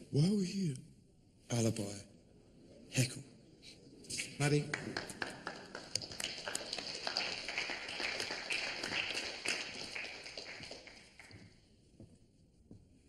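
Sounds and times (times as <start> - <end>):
small audience applause: 4.2 - 11.6.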